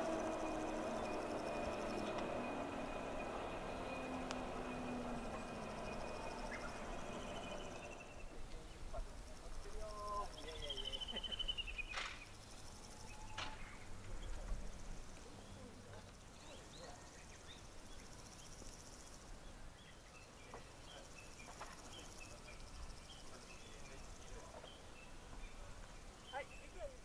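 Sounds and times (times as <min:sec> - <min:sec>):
bird chirps: 0:00.0 - 0:14.7
insects chirring: 0:00.0 - 0:27.0.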